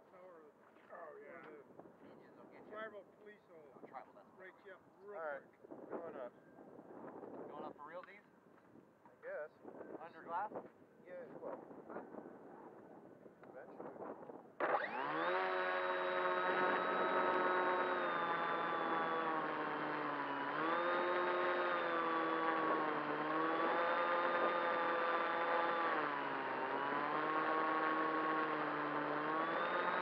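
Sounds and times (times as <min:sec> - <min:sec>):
electric motor and propeller whine: 0:14.6 - 0:30.0.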